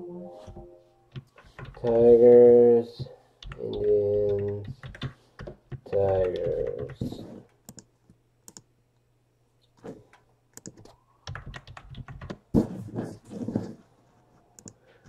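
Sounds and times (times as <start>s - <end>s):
typing on computer keyboard: 1.1s - 2.1s, 3.4s - 7.9s, 10.6s - 12.4s.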